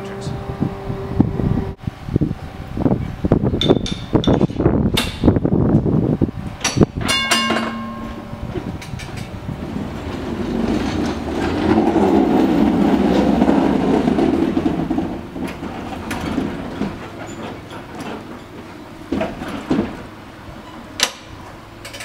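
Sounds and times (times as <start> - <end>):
tram wheels rumbling on rails: 0.0 - 22.0
brief ringing tone: 7.1 - 8.6.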